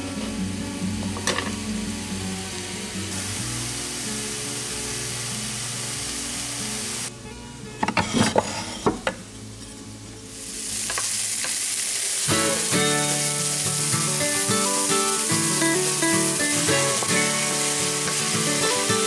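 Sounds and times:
background music: 0:00.0 - 0:19.0
meat sizzling in a frying pan: 0:01.3 - 0:07.1, 0:10.3 - 0:19.0.

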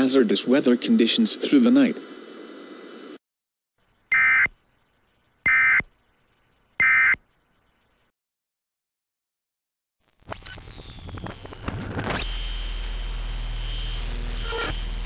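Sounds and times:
short digital tone bursts: 0:04.1 - 0:04.5.

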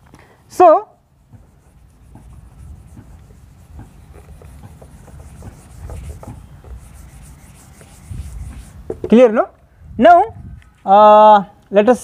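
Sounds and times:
duster rubbing on whiteboard: 0:01.2 - 0:09.1.

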